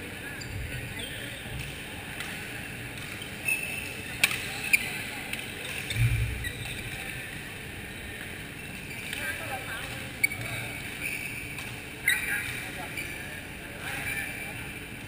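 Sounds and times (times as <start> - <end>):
shoe squeaks on court: 10.2 - 13.3.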